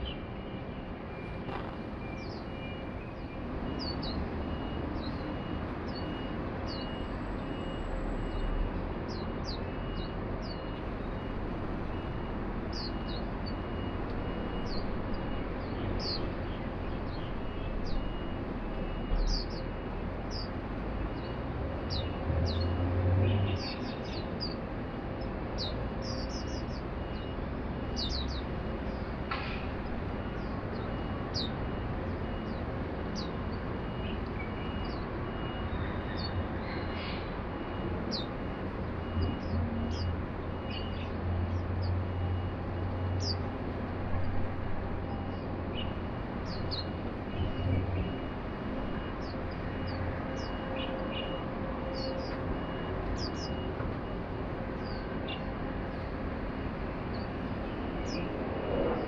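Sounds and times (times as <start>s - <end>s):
birds chirping: 0.0s - 56.2s, 56.8s - 59.0s
city traffic hum: 0.0s - 59.0s.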